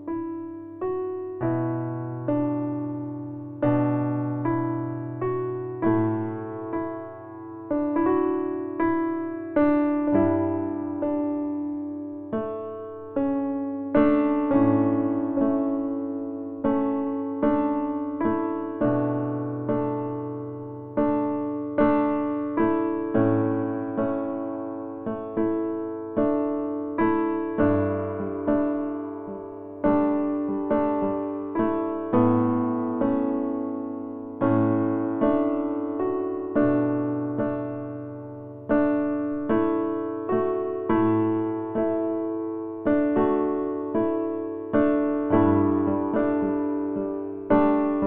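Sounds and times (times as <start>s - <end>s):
slow gentle piano music: 0.0s - 48.0s.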